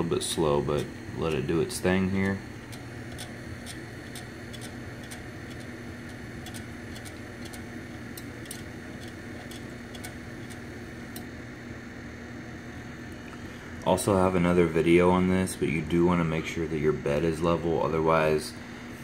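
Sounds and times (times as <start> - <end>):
printer motor and fan hum: 0.0 - 19.0
light mechanical ticks: 2.2 - 11.3.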